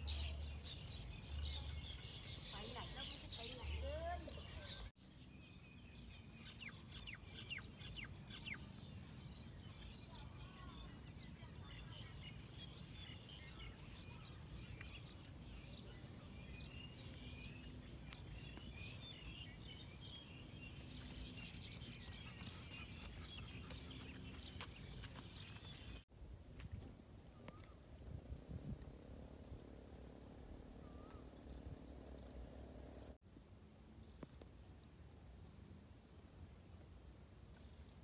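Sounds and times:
small birds chirping: 0.0 - 26.0, 30.8 - 33.2.

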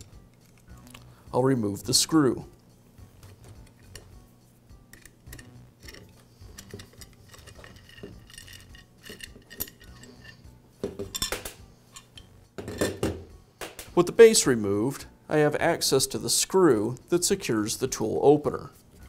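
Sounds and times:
metallic clicks and scrapes: 0.0 - 1.1, 3.3 - 4.2, 4.9 - 10.5
metal parts clinking on table: 5.0 - 10.4, 11.0 - 13.0.

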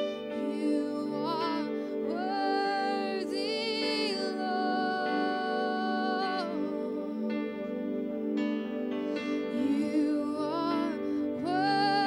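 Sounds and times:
worship music on electric keyboard: 0.0 - 12.0.

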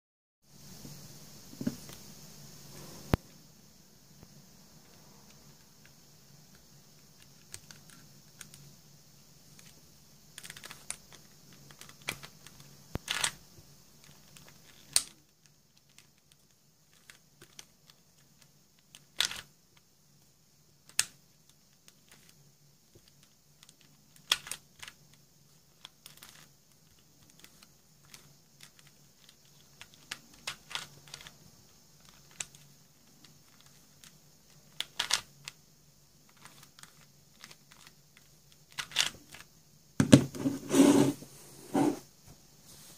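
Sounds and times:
plastic puzzle clicking: 10.4 - 13.4, 15.8 - 19.5, 23.0 - 25.0, 25.8 - 31.3, 32.0 - 35.6, 36.3 - 39.5.

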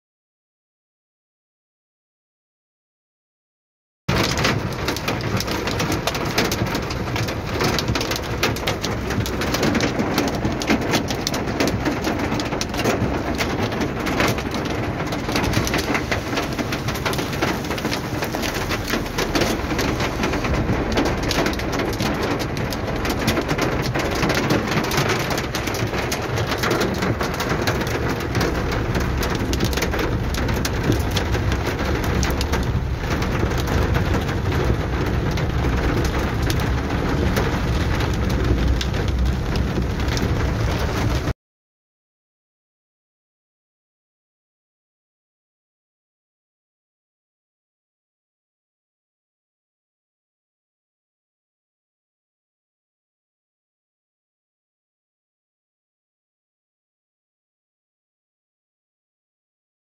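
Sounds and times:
hail and rain pelting car roof: 4.1 - 41.3.

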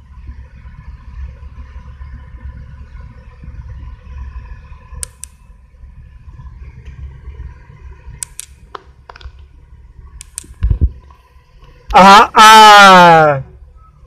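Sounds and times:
car engine idling: 0.0 - 14.0
sharp clicks: 5.0 - 5.4, 8.2 - 9.5, 10.2 - 10.9.

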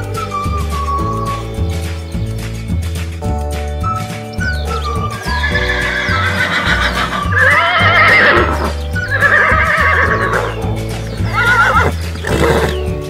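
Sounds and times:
background music with bass line: 0.0 - 13.0
horse whinnying: 5.1 - 12.9.

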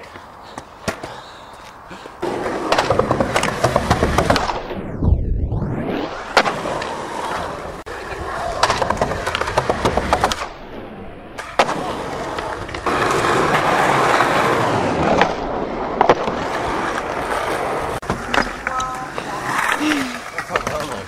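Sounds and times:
skateboard wheels rolling on concrete: 0.0 - 4.9, 5.7 - 21.0
skateboard clacking: 2.2 - 4.6, 8.0 - 10.5, 16.0 - 21.0.

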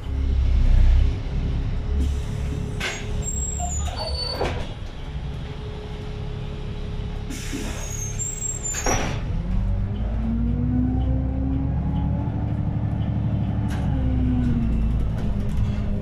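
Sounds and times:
bus engine running: 0.0 - 16.0
air brake hisses: 7.3 - 8.8.

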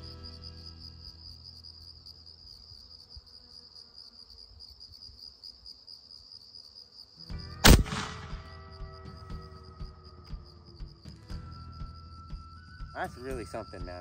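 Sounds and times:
insects chirring: 0.0 - 14.0
air rifle shot: 7.6 - 8.6.

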